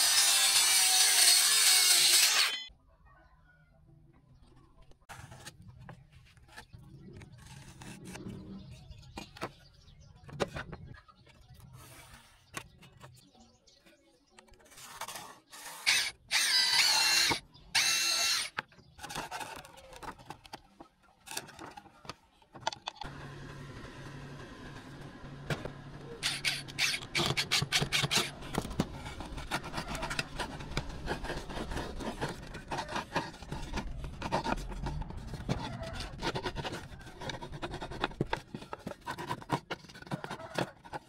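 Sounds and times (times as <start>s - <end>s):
tools and plywood clattering: 14.5s - 23.1s, 25.4s - 41.0s
cordless drill whining: 15.8s - 18.6s.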